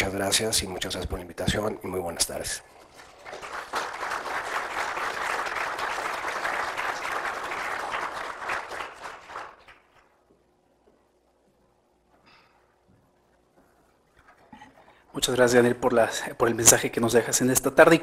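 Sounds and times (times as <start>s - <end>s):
audience applauding: 2.9s - 10.1s.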